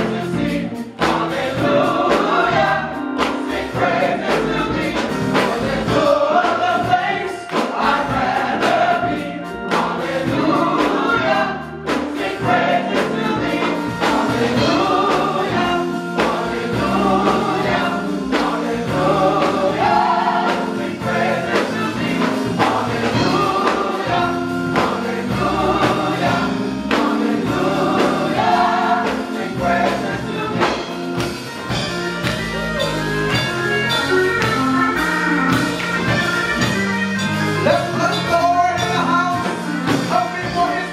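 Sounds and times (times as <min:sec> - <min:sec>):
gospel choir singing: 0:00.0 - 0:40.9.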